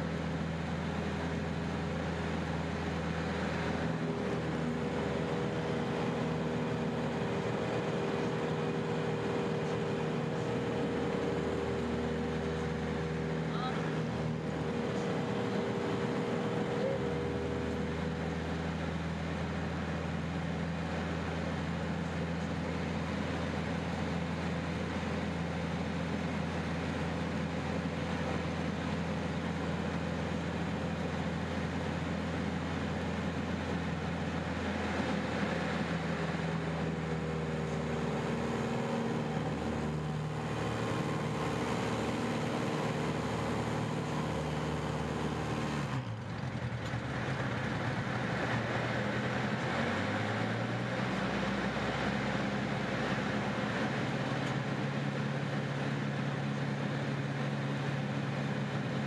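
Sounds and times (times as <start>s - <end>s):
propeller plane engine running: 0.0s - 59.0s.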